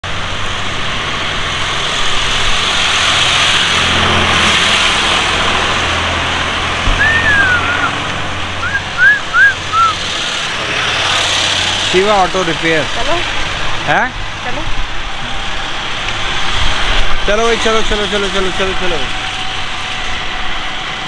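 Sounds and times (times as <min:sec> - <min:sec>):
road traffic noise: 0:00.0 - 0:21.0
vehicle passing: 0:00.0 - 0:21.0
high whistled chirps: 0:07.0 - 0:08.0, 0:08.6 - 0:10.0.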